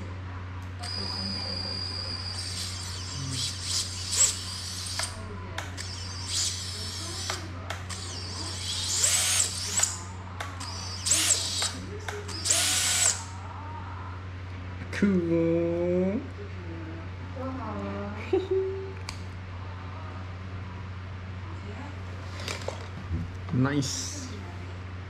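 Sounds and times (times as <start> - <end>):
electric screwdriver whirring: 2.2 - 13.3.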